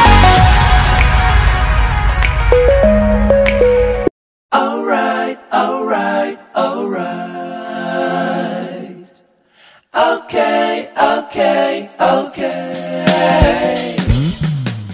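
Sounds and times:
music with sung vocals: 0:10.0 - 0:14.4.

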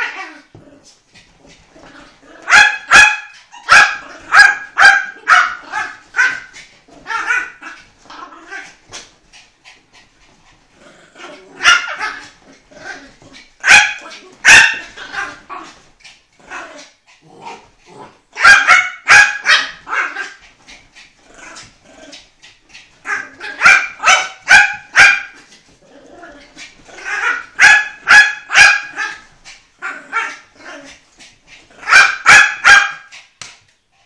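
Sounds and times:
dogs barking: 0:02.4 - 0:06.5, 0:13.6 - 0:15.4, 0:18.4 - 0:20.4, 0:23.1 - 0:25.4, 0:27.2 - 0:29.2, 0:31.8 - 0:33.1.

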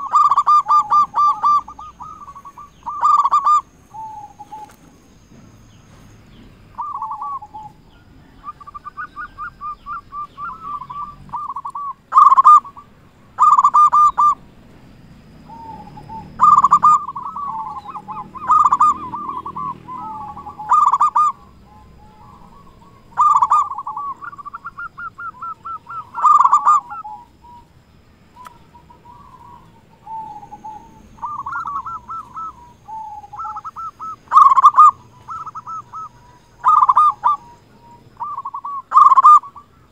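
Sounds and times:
dove soft staccato notes: 0:00.0 - 0:27.7
dove loud clear coos: 0:00.0 - 0:39.9.

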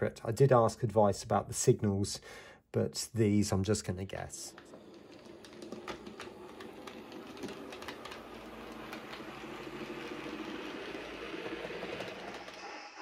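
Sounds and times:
wheels clicking over rails: 0:04.4 - 0:13.0
small motor whirr: 0:04.6 - 0:13.0.

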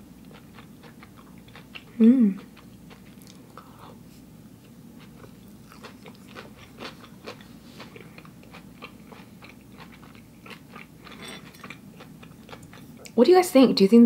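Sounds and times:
person chewing crunchy food: 0:00.1 - 0:13.2.

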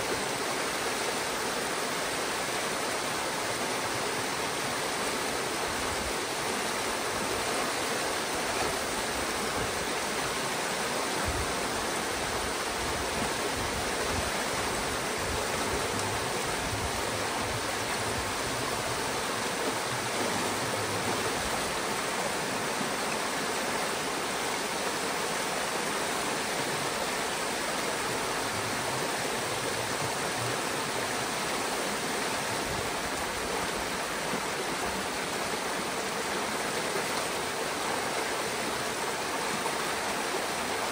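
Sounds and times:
water rushing through dam breach: 0:00.0 - 0:40.9.

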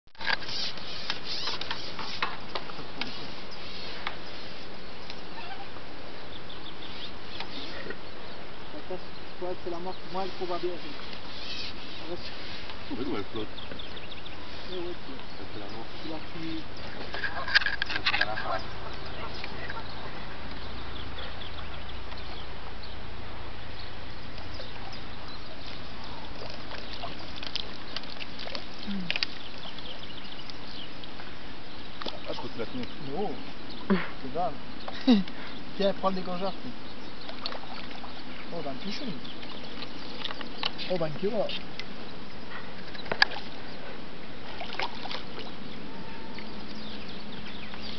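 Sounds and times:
steady hiss: 0:00.2 - 0:17.2
steady outdoor hiss: 0:00.2 - 0:47.9
water dripping: 0:24.0 - 0:33.0, 0:37.1 - 0:42.0
water splash: 0:44.5 - 0:45.5.

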